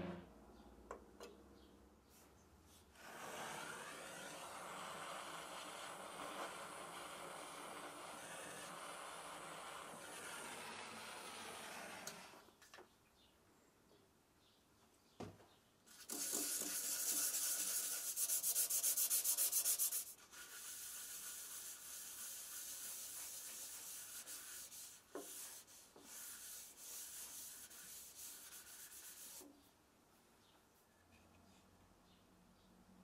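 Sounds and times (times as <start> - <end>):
paper towel rubbing wood: 3.0 - 12.4, 16.0 - 29.5.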